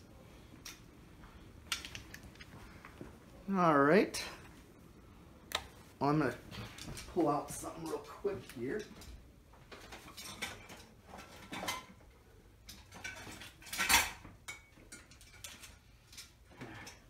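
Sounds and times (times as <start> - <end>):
metal objects clattering: 9.7 - 12.0, 12.7 - 17.0.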